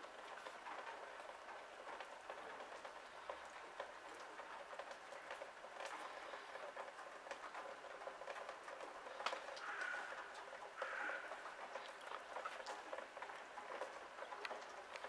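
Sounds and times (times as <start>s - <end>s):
light ticks: 2.0s - 15.0s
bird calling: 9.6s - 10.2s, 10.8s - 12.0s.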